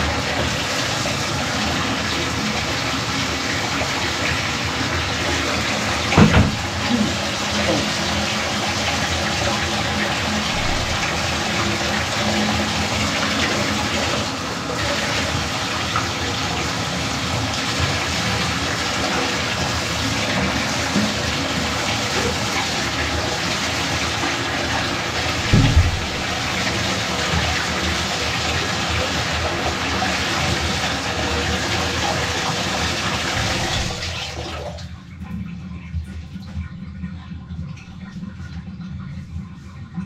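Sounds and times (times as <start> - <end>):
water running into bathtub: 0.0 - 39.8
low thump: 6.2 - 6.7, 25.5 - 26.3.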